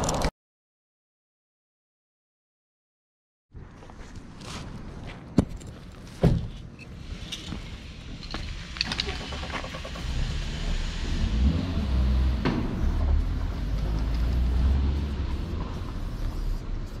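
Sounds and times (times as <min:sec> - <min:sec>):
car engine rumble: 0:07.1 - 0:17.0.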